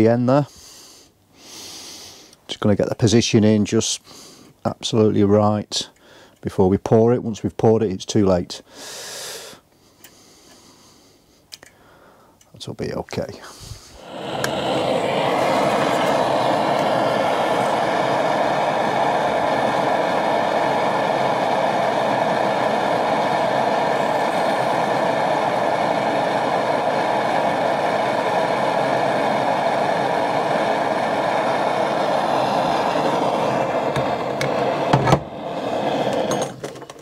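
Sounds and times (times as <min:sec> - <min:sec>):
blowtorch flame hissing: 0:13.4 - 0:37.0.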